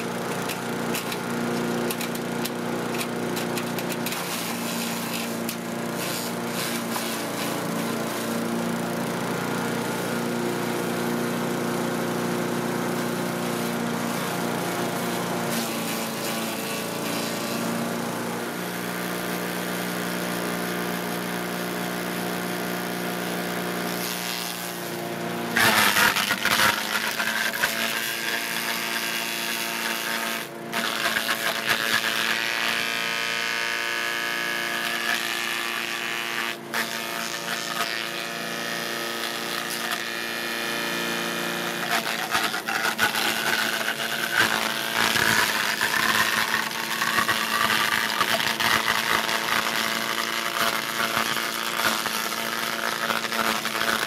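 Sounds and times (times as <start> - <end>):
chipper shredder running: 0.0 - 54.0
material being chipped: 25.6 - 32.9, 41.8 - 54.0.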